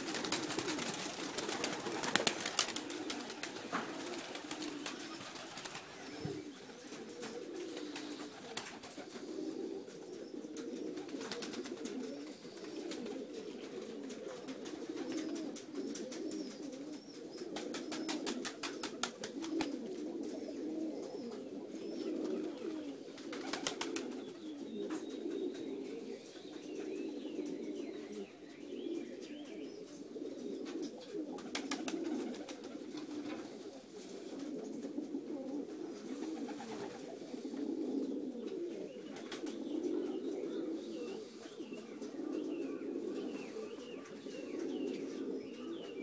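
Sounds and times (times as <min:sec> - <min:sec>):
wings clattering: 0:00.0 - 0:06.0
pigeons cooing: 0:00.0 - 0:46.0.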